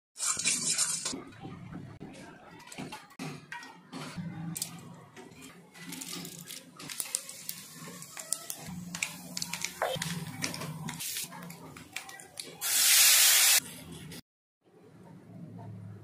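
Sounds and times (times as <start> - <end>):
spices crackling in hot oil: 6.0 - 10.1.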